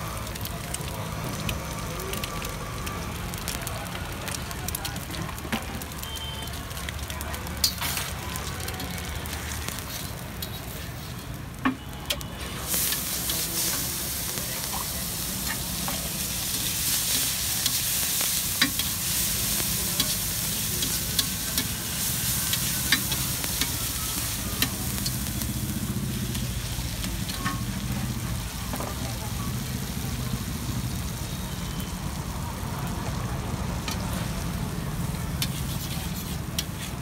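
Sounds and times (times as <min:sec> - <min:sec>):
food sizzling on a griddle: 0:00.0 - 0:37.0
steel spatula scraping griddle: 0:35.4 - 0:37.0.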